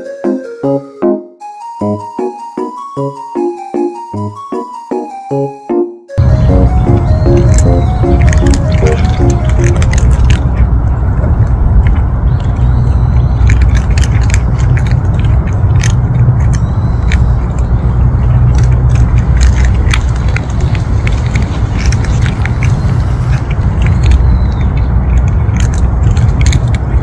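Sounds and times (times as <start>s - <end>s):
cats crunching dry kibble: 6.2s - 27.0s
low rumble: 6.2s - 27.0s.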